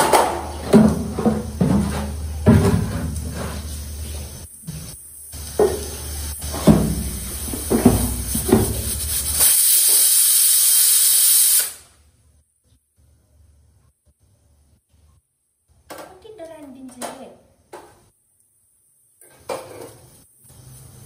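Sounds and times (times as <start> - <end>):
pots and utensils clanking: 0.0 - 9.4, 19.2 - 20.2
loud steady hiss: 0.0 - 12.2, 17.5 - 21.0.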